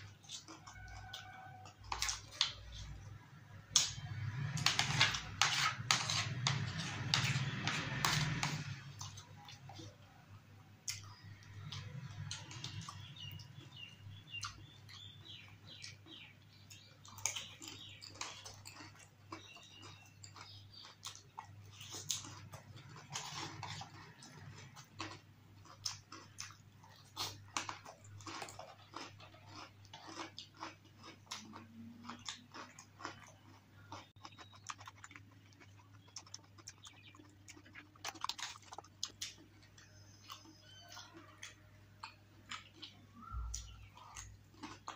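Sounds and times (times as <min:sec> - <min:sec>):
chewing and crunching crisp food: 0:00.0 - 0:44.9.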